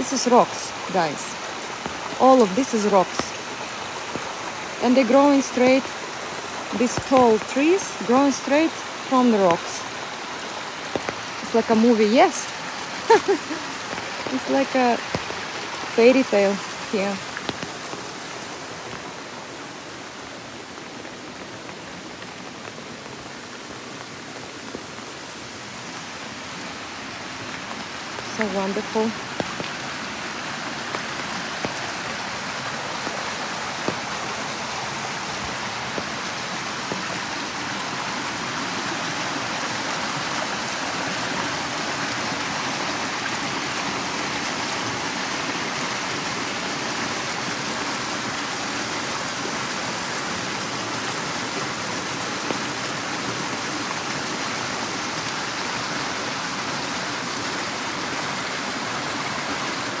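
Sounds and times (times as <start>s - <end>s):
steady rain: 0.0s - 60.0s
stream rushing: 0.0s - 60.0s
raindrop ticks close by: 1.4s - 2.2s, 5.4s - 8.0s, 8.7s - 11.8s, 12.4s - 25.3s, 26.8s - 38.4s.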